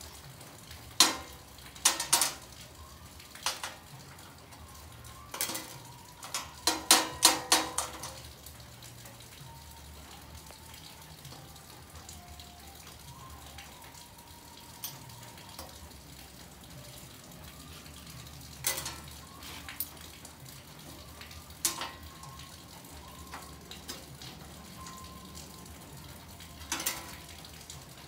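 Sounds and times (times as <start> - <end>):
workshop room tone hiss: 0.0 - 28.0
metal tools clicking on steel plate: 1.0 - 2.5, 3.4 - 3.8, 5.3 - 8.3, 14.8 - 15.7, 18.6 - 20.1, 21.6 - 22.0, 26.6 - 27.3.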